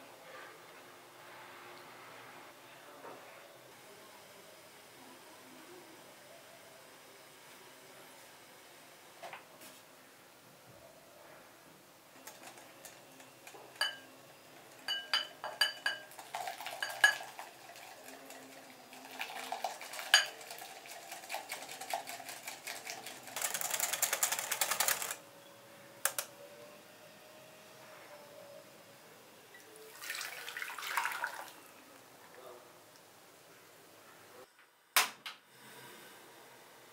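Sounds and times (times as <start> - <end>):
whisk clinking against glass bowl: 13.7 - 14.1, 14.8 - 18.6, 19.2 - 23.3
milk pouring: 16.0 - 23.8, 29.9 - 31.6.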